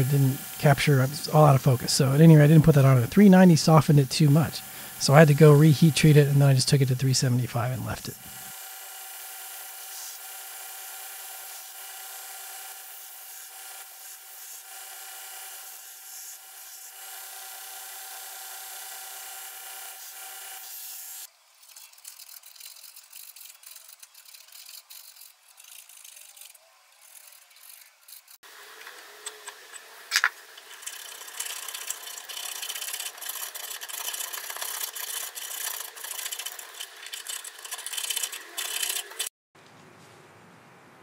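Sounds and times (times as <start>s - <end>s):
belt grinder humming: 0.0s - 39.3s
file scraping on steel and wood: 8.2s - 28.4s, 30.8s - 39.3s.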